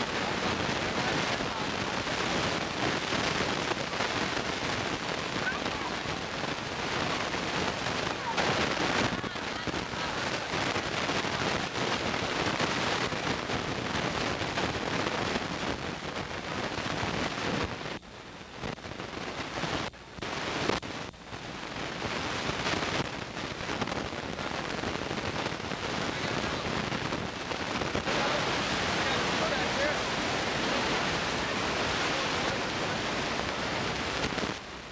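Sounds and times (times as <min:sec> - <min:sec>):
steady rushing noise: 0:00.0 - 0:34.9.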